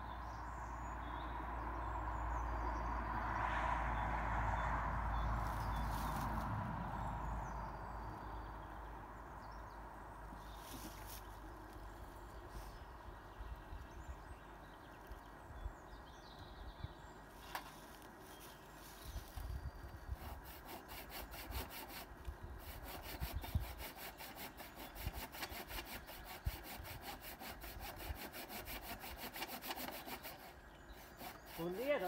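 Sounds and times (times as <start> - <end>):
hand saw cutting branch: 20.0 - 32.0.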